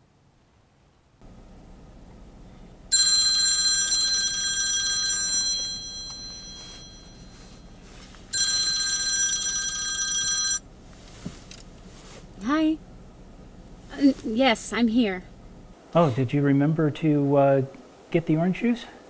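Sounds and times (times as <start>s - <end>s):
low rumble of car cabin: 0.2s - 15.8s
phone ringtone with bell-like tones: 2.9s - 10.7s.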